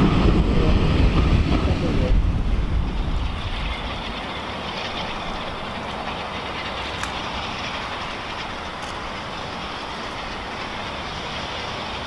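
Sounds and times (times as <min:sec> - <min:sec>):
steam locomotive exhaust rushing: 0:00.0 - 0:12.0.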